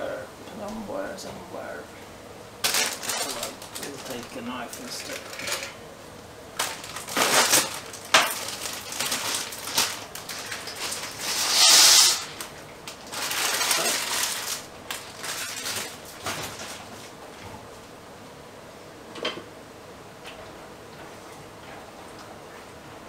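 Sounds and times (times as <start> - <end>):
plastic bag crinkling and rustling: 2.6 - 5.7, 6.6 - 11.4, 12.3 - 17.2.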